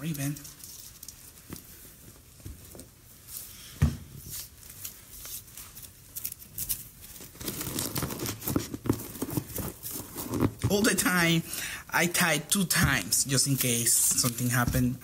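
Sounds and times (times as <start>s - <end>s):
ribbon and balloon rustling: 0.0s - 11.2s.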